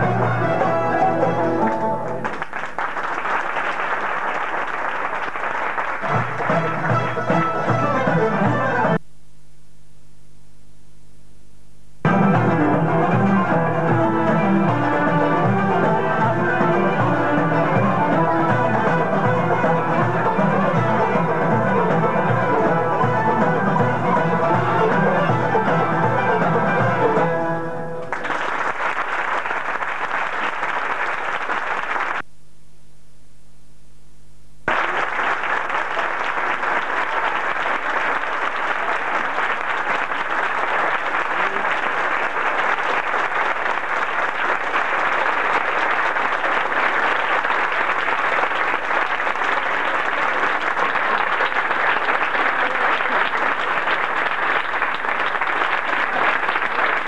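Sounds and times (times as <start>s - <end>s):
audience applauding: 0.0s - 9.0s, 28.0s - 32.3s, 34.7s - 57.0s.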